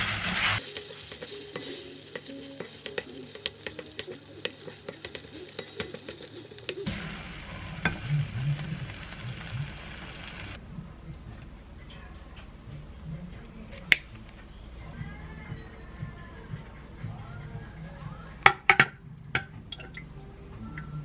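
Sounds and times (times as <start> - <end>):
spatula scraping pan: 0.0 - 9.7
food sizzling in frying pan: 0.0 - 10.6.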